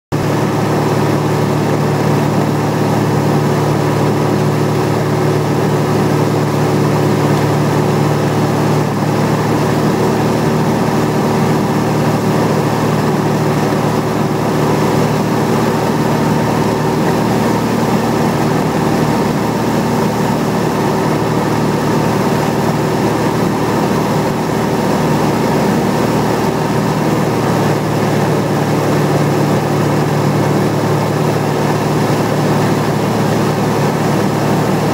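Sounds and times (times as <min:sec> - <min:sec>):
light aircraft engine in cockpit: 0:00.1 - 0:34.9.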